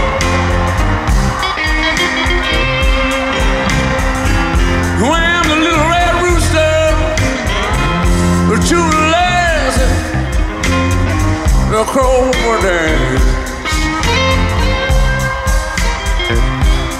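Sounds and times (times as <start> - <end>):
electric blues band playing: 0.0 - 16.9
man singing: 4.9 - 10.6, 11.5 - 13.7.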